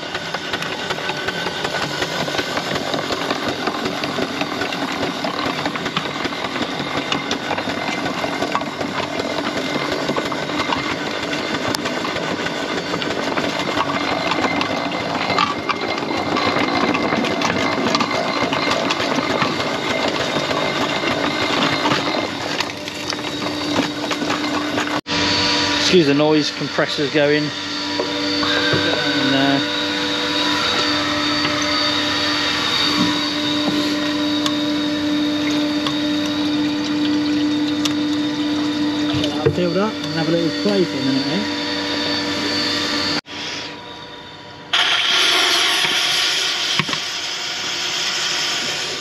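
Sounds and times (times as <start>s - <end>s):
iron wheels rolling over gravel: 0.0s - 25.0s, 30.4s - 41.4s
steam engine mechanical clatter: 0.0s - 25.0s.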